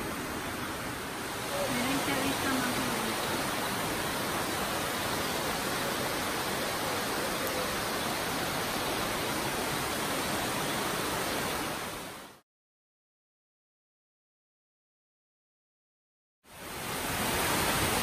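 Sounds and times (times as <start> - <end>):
waterfall rushing over rocks: 0.0 - 12.4, 16.5 - 18.0.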